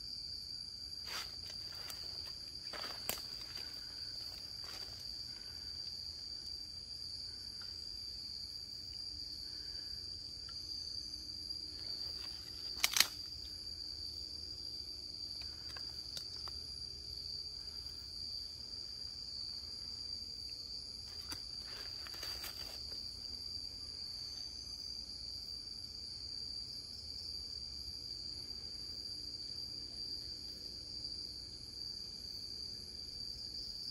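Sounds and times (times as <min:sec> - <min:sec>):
night insect chorus trilling: 0:00.0 - 0:33.9
sharp clicks: 0:12.7 - 0:13.2.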